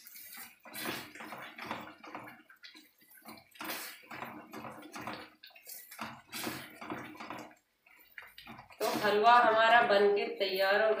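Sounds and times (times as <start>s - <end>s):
spoon stirring thick mixture: 0.0s - 10.9s
spoon scraping a pan: 3.2s - 10.0s.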